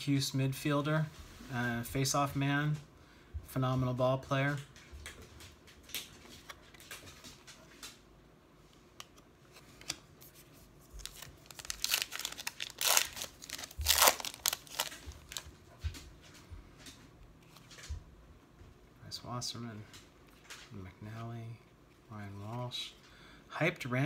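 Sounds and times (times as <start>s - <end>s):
foil wrapper ripping and crinkling: 10.9s - 15.4s.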